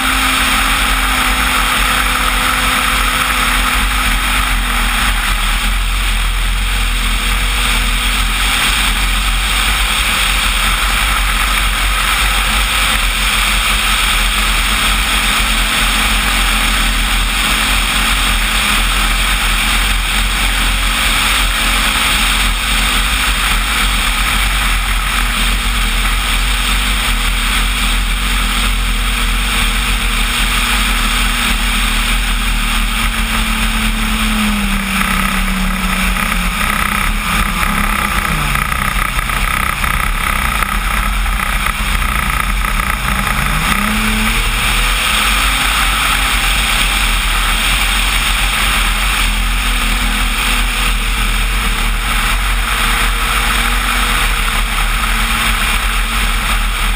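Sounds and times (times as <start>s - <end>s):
model plane motor and propeller: 0.0s - 56.9s.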